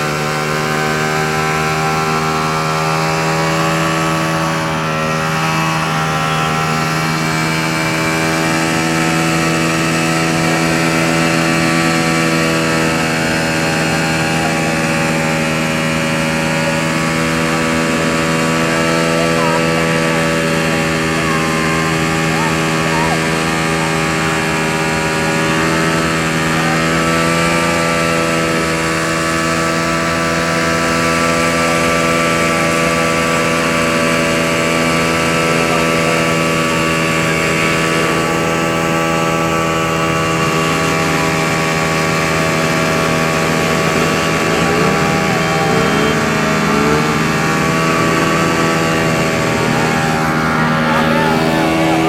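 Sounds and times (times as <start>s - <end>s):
motorcycle engine running: 0.0s - 52.0s.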